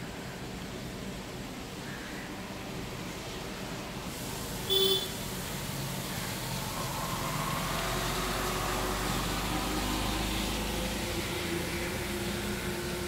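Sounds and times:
rain falling on a street: 0.0 - 13.0
car engine humming: 4.7 - 13.0.

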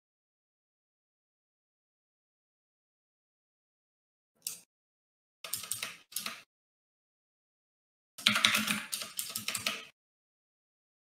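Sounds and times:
computer keyboard typing: 5.5 - 6.5, 8.2 - 10.0.

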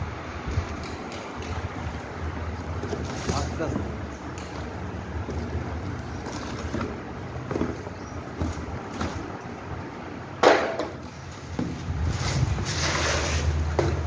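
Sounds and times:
cardboard rustling and scraping: 2.6 - 4.0, 4.6 - 9.5, 11.0 - 14.0.

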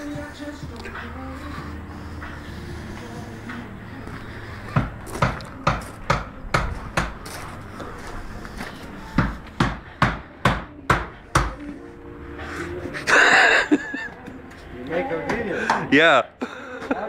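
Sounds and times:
steady low hum: 0.0 - 14.9.

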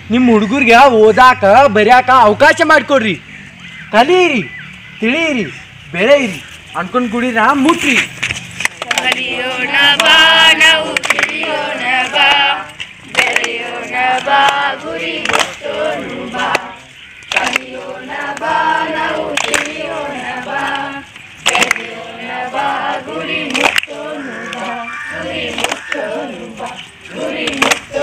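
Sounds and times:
group singing in chorus: 8.7 - 28.0.

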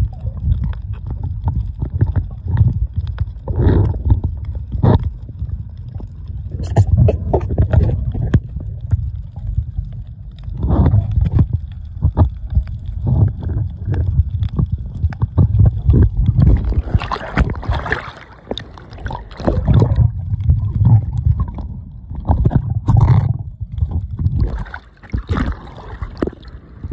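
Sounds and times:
water sloshing and gurgling: 0.0 - 26.9
small splashes: 16.4 - 20.1, 24.4 - 26.6.

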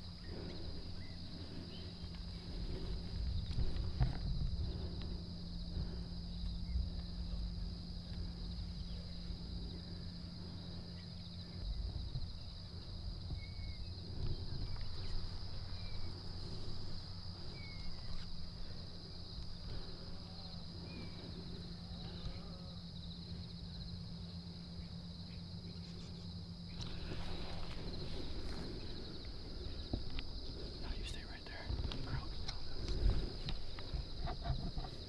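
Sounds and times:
low rumble: 0.0 - 25.6
crickets trilling: 0.0 - 35.0.

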